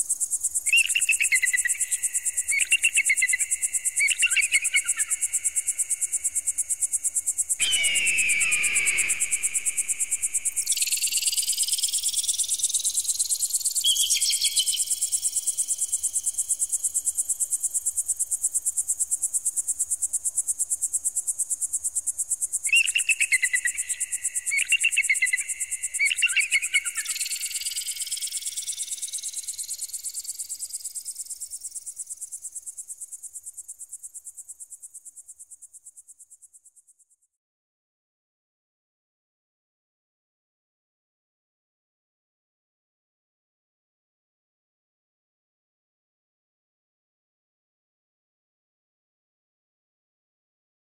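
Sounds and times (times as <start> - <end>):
falling electronic screech: 7.6 - 10.1
short chirping trills: 7.6 - 15.8.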